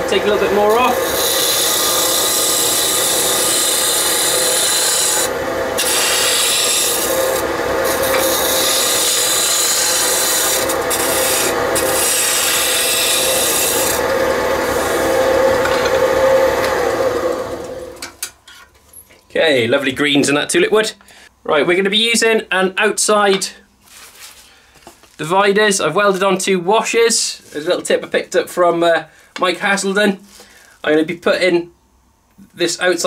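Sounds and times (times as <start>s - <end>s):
lathe motor hum: 0.0s - 18.0s.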